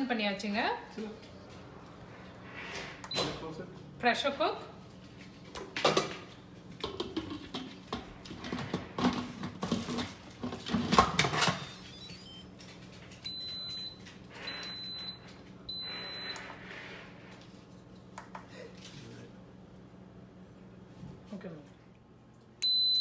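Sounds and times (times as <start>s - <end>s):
long high beeps: 13.3s - 16.5s.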